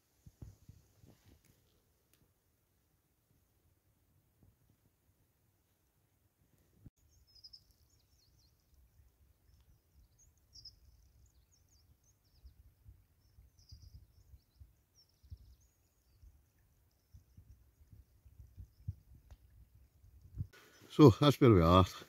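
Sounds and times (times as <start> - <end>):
small birds chirping: 7.0 - 22.0
low rumble on microphone: 17.0 - 20.5.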